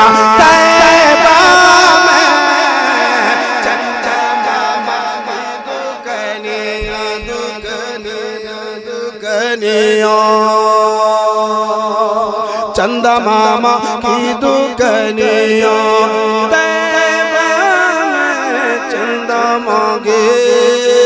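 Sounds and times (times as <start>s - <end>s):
man singing over loudspeakers: 0.0s - 21.0s
low thumps: 6.4s - 8.8s.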